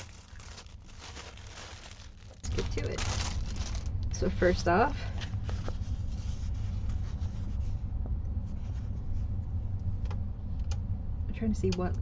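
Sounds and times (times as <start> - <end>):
paper rustling: 0.0 - 7.6
steady low hum: 0.0 - 12.0.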